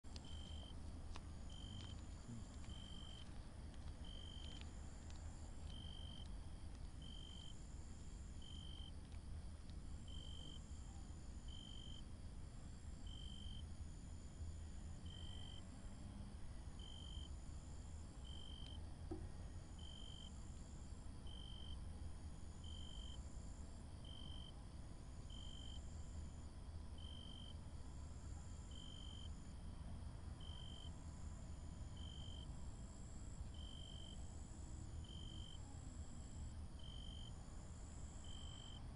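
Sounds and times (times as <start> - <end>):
steady low rumble: 0.1 - 10.2
insects chirping: 0.1 - 18.8, 19.4 - 29.6, 30.4 - 38.9.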